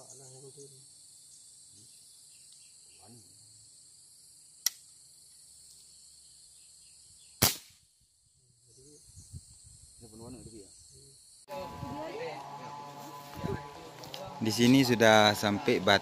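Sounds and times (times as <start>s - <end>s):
high-pitched insect chorus: 0.0s - 16.0s
gunshot with ringing tail: 7.4s - 7.8s
sharp crack: 7.4s - 7.9s.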